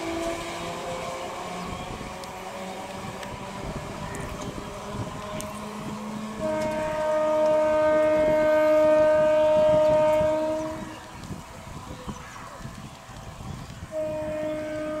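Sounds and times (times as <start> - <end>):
train air horn blast: 0.0 - 1.2, 4.0 - 11.1, 13.9 - 15.0
passenger train running: 0.0 - 15.0.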